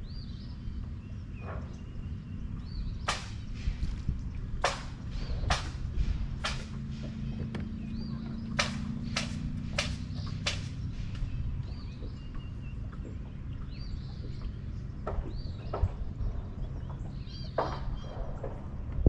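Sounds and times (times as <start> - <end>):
steady hum: 0.0 - 17.3
low rumble: 0.0 - 19.0
sharp clicks: 8.6 - 11.3.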